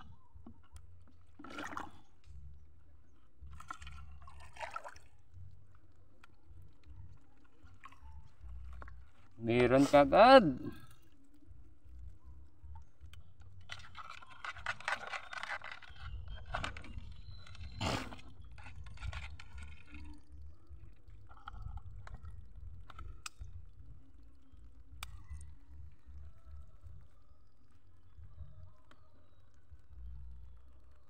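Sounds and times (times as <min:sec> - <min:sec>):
small splashes: 0:01.2 - 0:02.2, 0:03.4 - 0:09.3.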